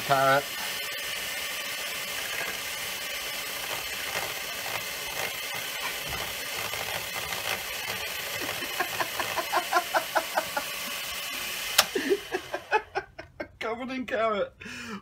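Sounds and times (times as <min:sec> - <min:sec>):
electric motor humming: 0:00.0 - 0:13.2
blades chopping carrot ticks: 0:02.1 - 0:09.6.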